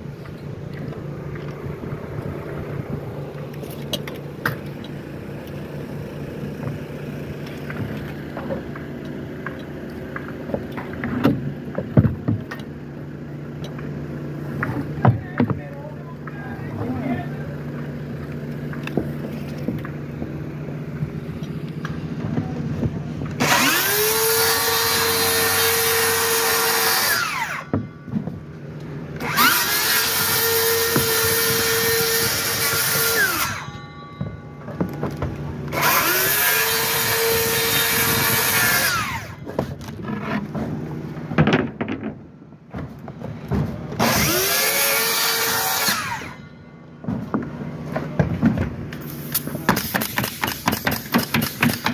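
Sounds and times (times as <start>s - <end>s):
circular saw cutting board: 23.4s - 27.8s, 29.2s - 34.9s, 35.6s - 40.5s, 44.0s - 46.5s.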